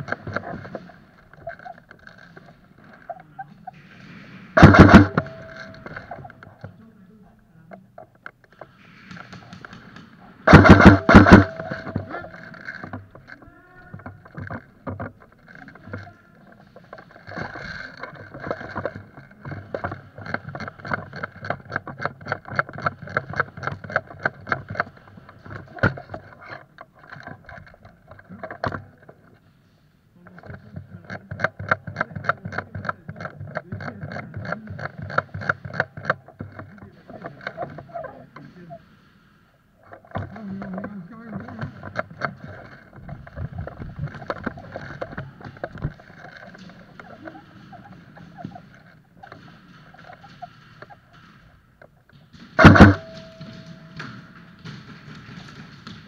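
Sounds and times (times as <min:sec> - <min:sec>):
fast clicking and rattling: 0:00.0 - 0:06.9, 0:07.9 - 0:29.4, 0:30.2 - 0:56.0
airsoft gun shots: 0:04.2 - 0:06.2, 0:09.0 - 0:12.4, 0:52.6 - 0:55.9.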